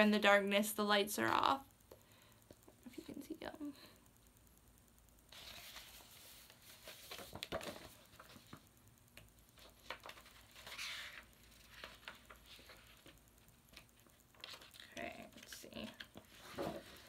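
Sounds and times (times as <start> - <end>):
paper rustling: 5.3 - 17.0.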